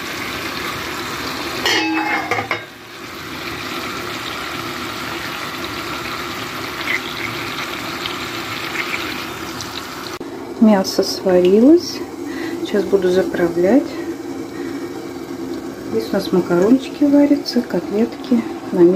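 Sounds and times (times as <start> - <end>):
meat sizzling in frying pan: 0.0 - 10.5.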